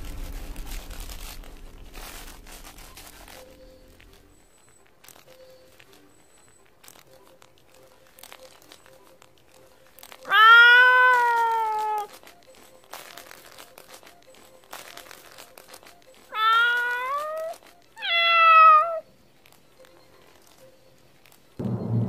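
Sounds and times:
faint rustling: 0.0s - 10.4s
cat meowing: 10.2s - 12.2s, 16.3s - 19.1s.

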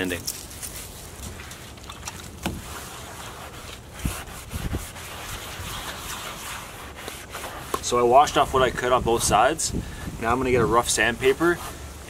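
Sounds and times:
cloth scrubbing plastic hull: 2.3s - 8.9s.

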